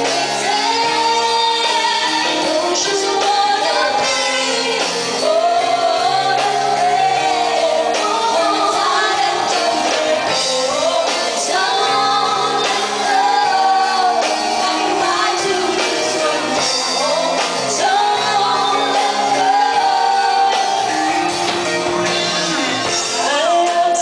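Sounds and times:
bass guitar: 0:00.0 - 0:24.0
drums: 0:00.0 - 0:24.0
electric guitar: 0:00.0 - 0:24.0
women singing: 0:00.0 - 0:24.0.

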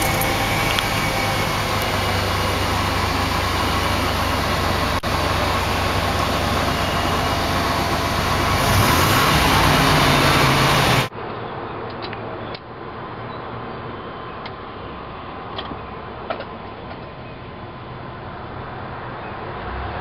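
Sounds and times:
engine idling: 0:00.0 - 0:11.1
van engine running while driving: 0:00.0 - 0:11.1.

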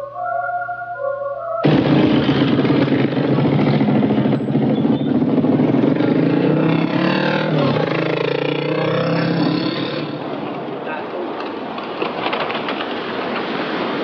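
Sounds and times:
vehicle engine running: 0:01.6 - 0:10.4
crowd voices: 0:07.4 - 0:11.6.

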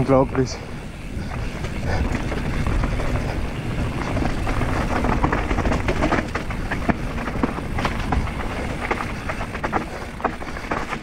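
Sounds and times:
bike clacking and rattling: 0:00.0 - 0:11.0
tyres on dirt: 0:00.0 - 0:11.0
wind on microphone: 0:00.8 - 0:11.0.

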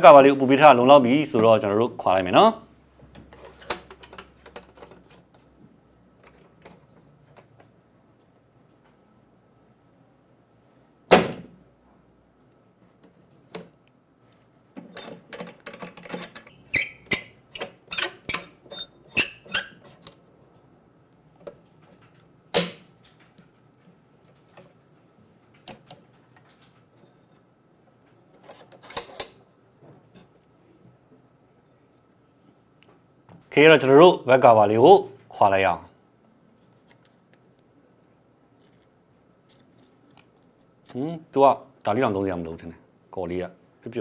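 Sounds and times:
clicks and knocks: 0:14.7 - 0:18.7.

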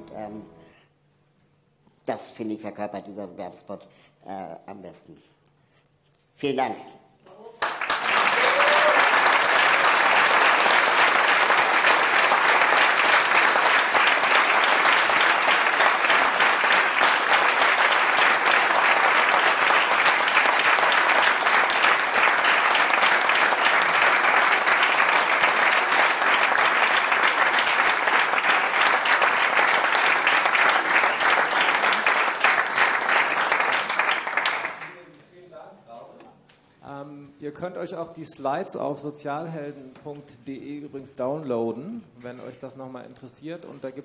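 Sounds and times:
audience applauding: 0:07.6 - 0:35.1.

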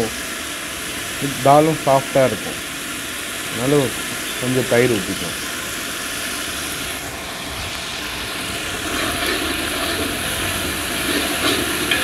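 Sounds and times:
pot hissing on stove: 0:00.0 - 0:12.0
ladle stirring liquid: 0:08.6 - 0:12.0.

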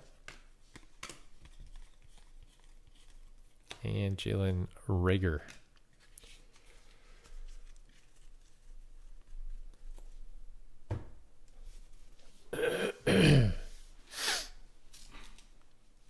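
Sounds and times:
trading cards rustling: 0:00.0 - 0:04.4, 0:05.1 - 0:10.3, 0:14.8 - 0:15.8
man clearing his throat: 0:12.5 - 0:13.7.

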